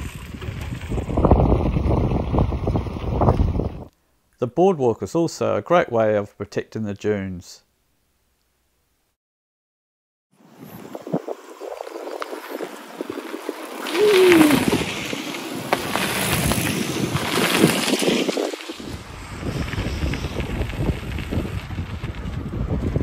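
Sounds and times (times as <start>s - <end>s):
bike rattling and clicking: 0.0s - 3.2s, 11.4s - 23.0s
wind on microphone: 0.0s - 3.9s, 10.6s - 23.0s.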